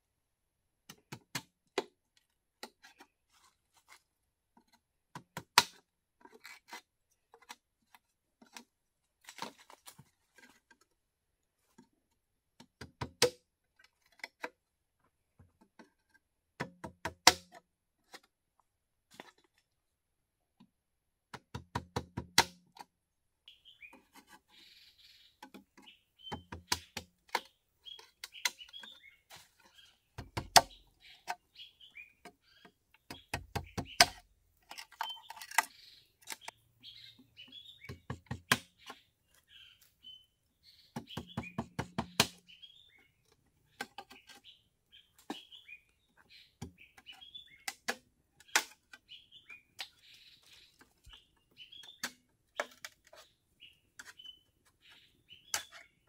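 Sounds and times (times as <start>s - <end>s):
machete chopping bamboo: 5.2s - 5.9s, 12.8s - 13.5s, 16.6s - 17.7s, 21.4s - 22.6s, 26.3s - 28.9s, 30.2s - 31.4s, 33.1s - 35.7s, 37.9s - 39.0s, 41.0s - 42.4s
birds chirping: 23.4s - 56.0s.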